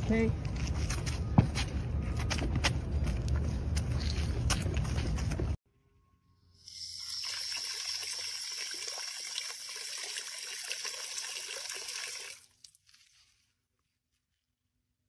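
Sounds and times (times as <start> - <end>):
hose spraying water into bucket: 6.7 - 12.8.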